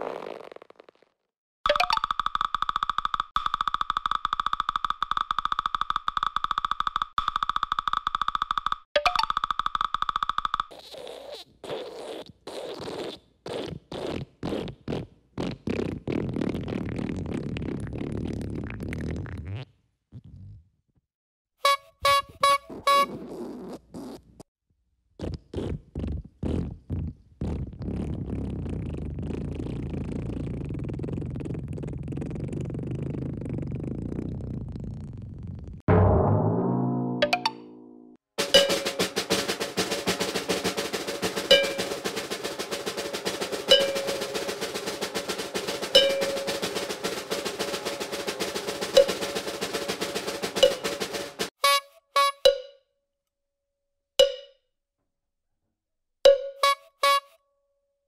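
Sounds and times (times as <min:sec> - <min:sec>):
ringing bell-like note: 0:35.9 - 0:38.8
fast percussion drum roll: 0:38.4 - 0:51.6.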